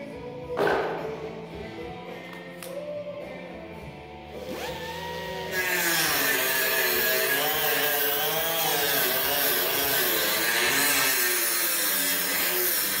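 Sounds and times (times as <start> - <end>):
power tool cutting sheet metal: 4.4 - 13.0.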